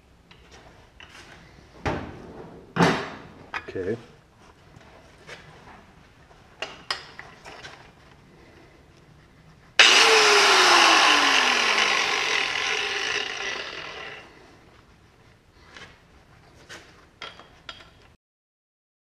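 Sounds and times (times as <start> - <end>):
angle grinder whine: 9.8 - 14.5.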